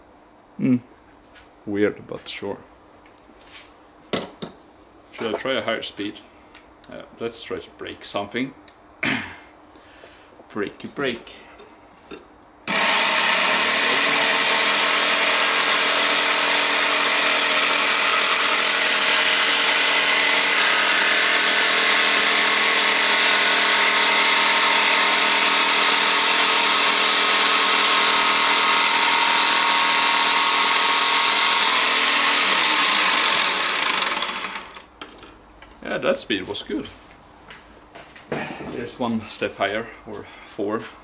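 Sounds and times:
jigsaw motor whine: 12.7 - 34.9.

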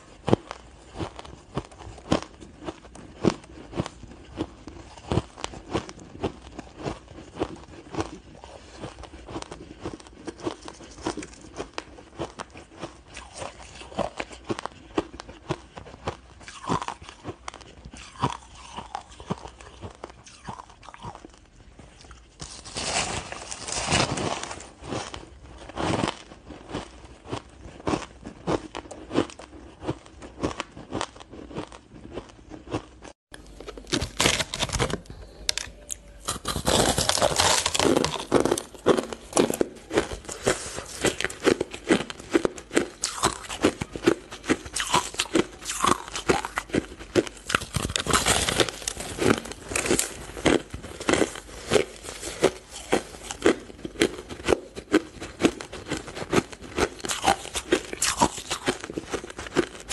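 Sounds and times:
frozen ice crunching: 22.4 - 29.4, 33.4 - 59.9.

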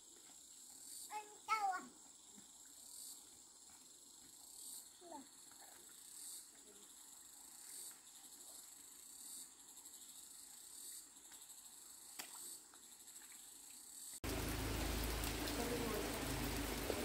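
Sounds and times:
high-pitched insect trilling: 0.1 - 14.2.

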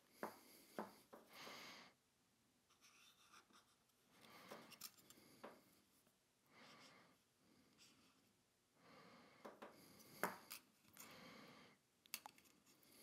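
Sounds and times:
marker scratching on metal rail: 2.7 - 3.8.

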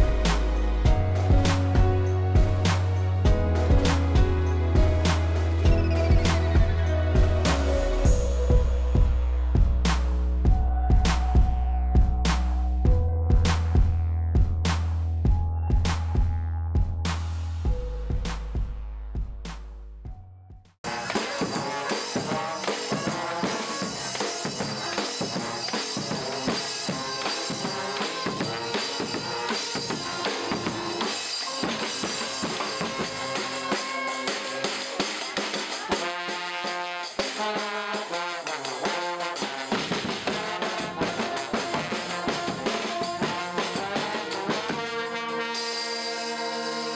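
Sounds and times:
brass band playing: 0.0 - 9.1, 20.9 - 46.9
bass drum beat: 0.0 - 26.6, 39.7 - 44.8.

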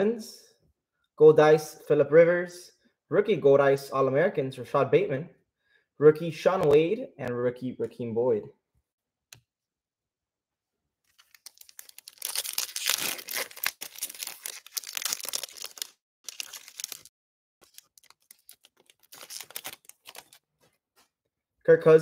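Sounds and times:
foil pack tearing and crinkling: 11.1 - 20.4
cards rustling: 11.1 - 21.1.

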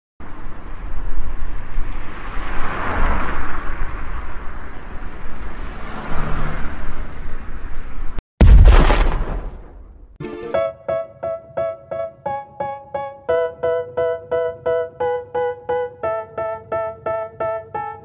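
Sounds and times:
loud sudden hit: 8.4 - 10.2.

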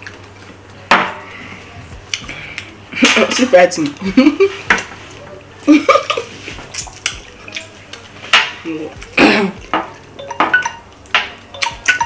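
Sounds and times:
wet biting and chewing: 6.5 - 8.2
fingers knocking against plates: 9.6 - 12.0.

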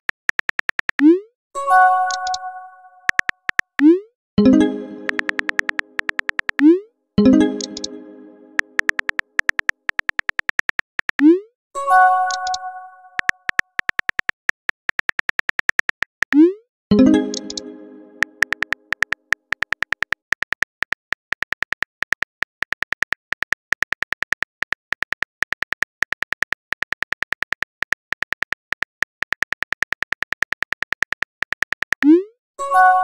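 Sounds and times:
phone keyboard typing clicks: 0.1 - 1.2, 2.1 - 6.8, 7.4 - 8.0, 8.6 - 11.4, 12.3 - 16.5, 17.1 - 32.2
message alert chime: 1.6 - 3.2, 4.4 - 8.9, 11.8 - 13.3, 16.9 - 18.6.

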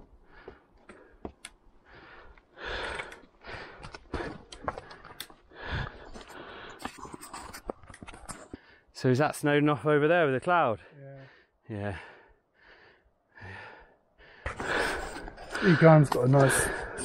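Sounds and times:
person breathing hard: 0.2 - 6.9, 11.2 - 17.0.

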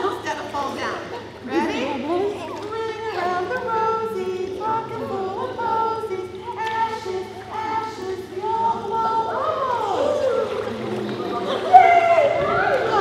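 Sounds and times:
group of adults singing: 1.4 - 13.0.

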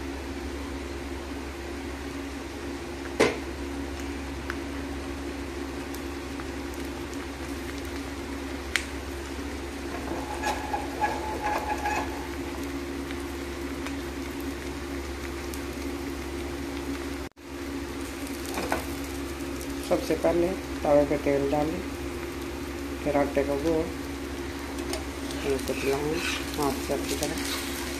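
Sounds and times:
steady hum: 0.0 - 18.4
sizzling and bubbling in oil: 0.0 - 27.9.

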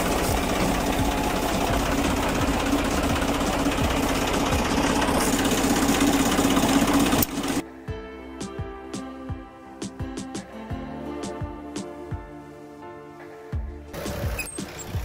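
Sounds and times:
tractor diesel engine clatter: 0.0 - 7.6, 14.0 - 15.0
background music: 0.0 - 15.0.

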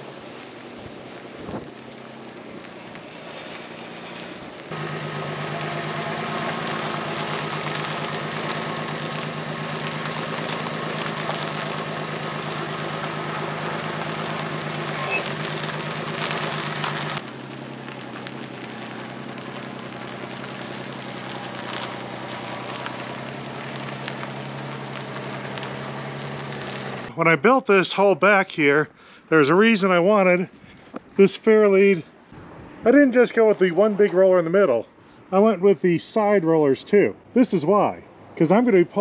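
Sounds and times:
tug engine running: 0.0 - 27.1
tyres on gravel: 0.0 - 27.1.

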